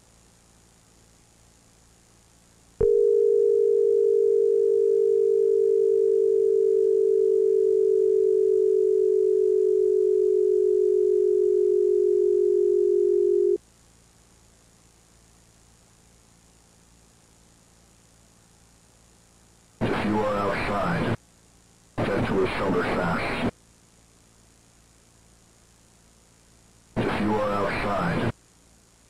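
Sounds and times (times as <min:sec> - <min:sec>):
tape hiss: 0:00.0 - 0:29.0
low alarm tone: 0:02.8 - 0:13.6.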